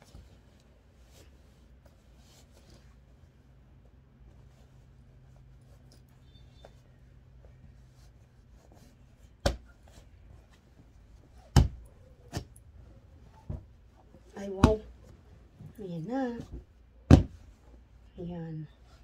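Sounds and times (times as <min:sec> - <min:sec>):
cloth rustling: 0:00.0 - 0:19.0.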